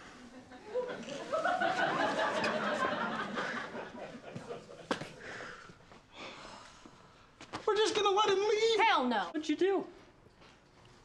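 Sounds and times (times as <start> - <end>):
audience laughing: 0.3 - 5.1.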